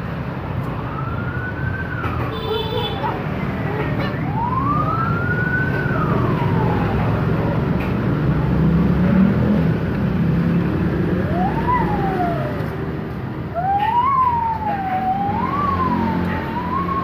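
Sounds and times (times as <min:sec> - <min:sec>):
siren wailing: 0:03.0 - 0:07.4, 0:11.1 - 0:12.8, 0:13.5 - 0:17.0.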